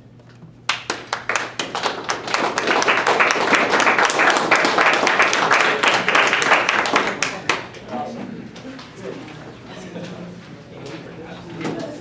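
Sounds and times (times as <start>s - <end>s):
audience applauding: 0.7s - 7.7s.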